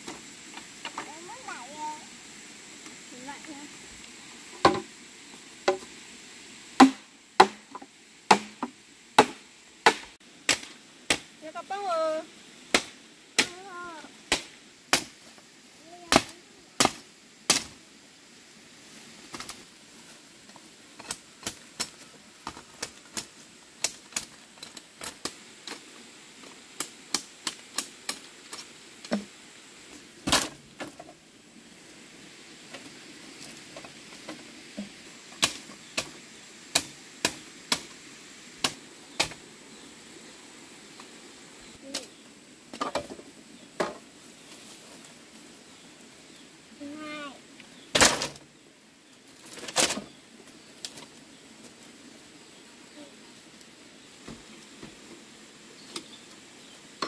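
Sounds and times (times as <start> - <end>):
tool striking sharp knocks: 6.8 - 10.1.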